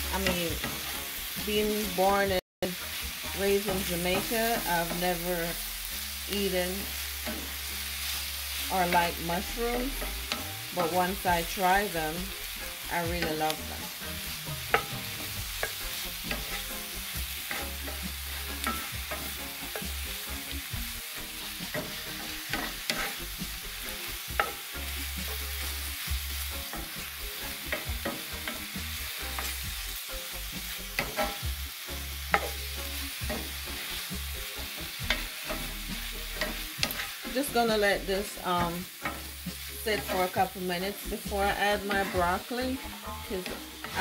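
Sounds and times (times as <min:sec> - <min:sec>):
vegetables sizzling in a skillet: 0:00.0 - 0:44.0
wooden spatula scraping a pan: 0:06.5 - 0:29.7, 0:33.2 - 0:44.0.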